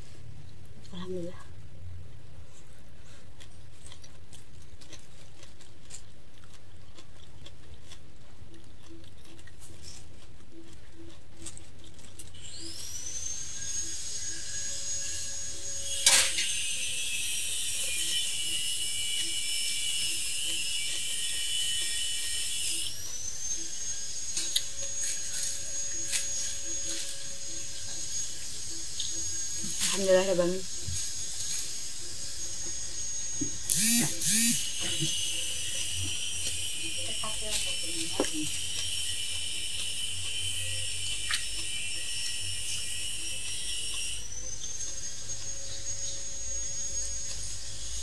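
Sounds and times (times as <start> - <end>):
small high-speed motor whining: 12.4 - 48.0.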